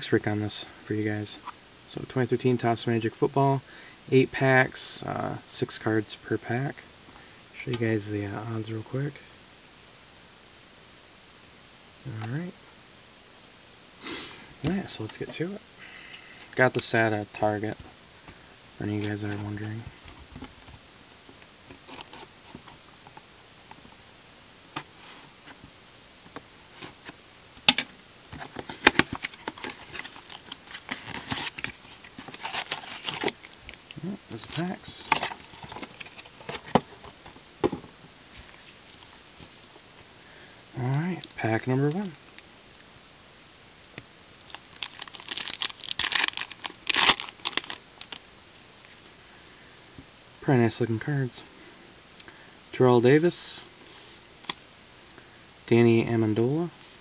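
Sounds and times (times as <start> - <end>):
card pack wrapper crinkling and tearing: 21.7 - 22.7, 28.4 - 37.4, 44.4 - 48.2.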